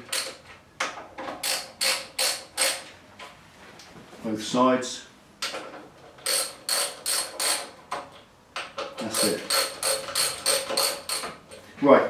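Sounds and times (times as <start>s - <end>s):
socket ratchet clicking: 1.4s - 2.8s, 6.2s - 7.7s, 9.1s - 11.3s.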